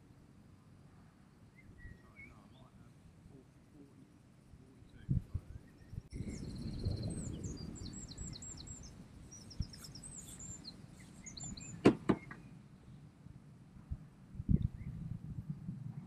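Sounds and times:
songbird chirping and trilling: 1.4s - 2.9s, 4.7s - 13.1s.

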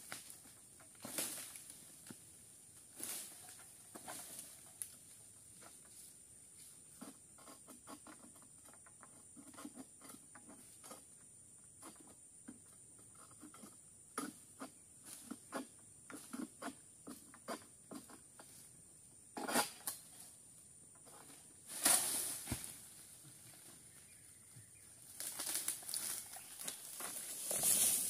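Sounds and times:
sickle knocking among palm fronds: 0.0s - 2.2s, 21.2s - 23.8s, 25.1s - 28.0s.

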